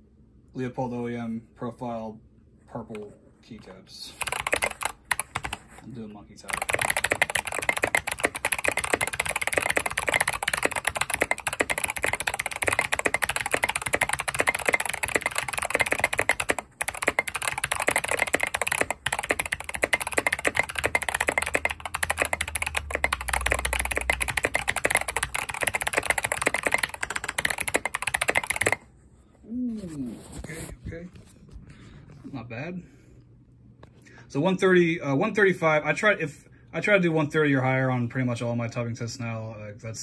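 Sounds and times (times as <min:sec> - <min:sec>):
fast mechanical keyboard typing: 0:04.0 - 0:28.9.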